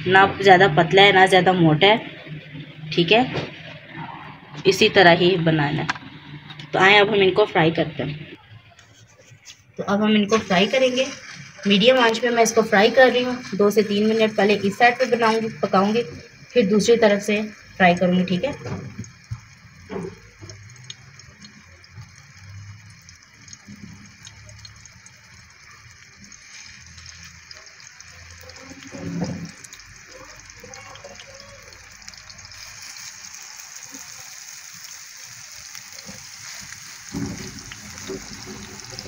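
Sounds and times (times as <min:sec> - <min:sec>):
burger patties sizzling in oil: 0:09.9 - 0:39.0
thump: 0:37.1 - 0:37.6.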